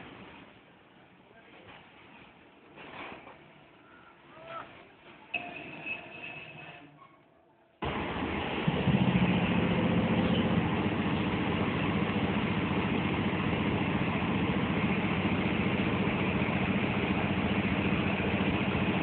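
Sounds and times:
locomotive engine idling: 7.8s - 19.0s
low hum: 7.8s - 19.0s.

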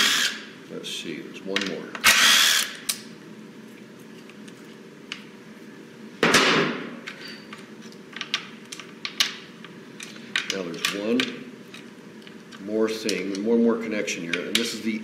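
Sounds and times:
cordless driver whirring: 0.0s - 0.4s, 2.0s - 2.8s.

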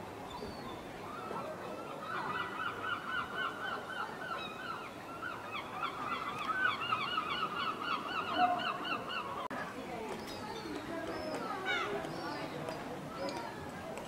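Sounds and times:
bird calling in clipped notes: 5.8s - 9.2s.

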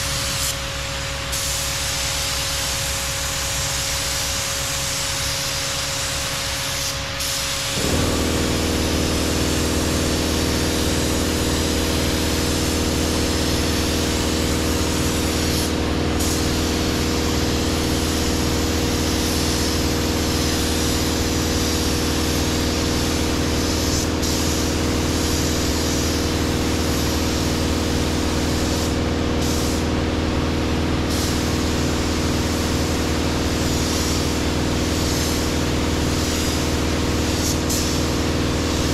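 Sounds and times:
spray gun hissing: 0.0s - 38.9s
machine humming: 7.8s - 19.3s.

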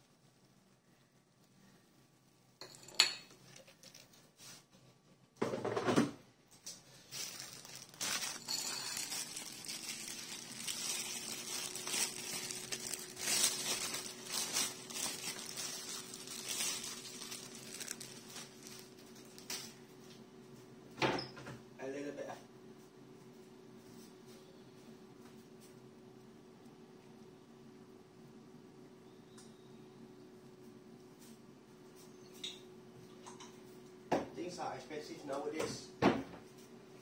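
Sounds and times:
crackling and clinking of plates: 7.2s - 19.6s.

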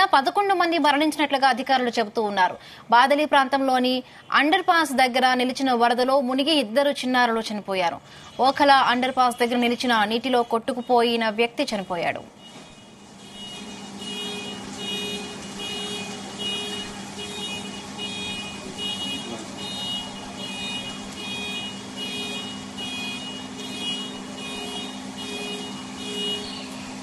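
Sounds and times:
car alarm beeping: 10.0s - 27.0s.

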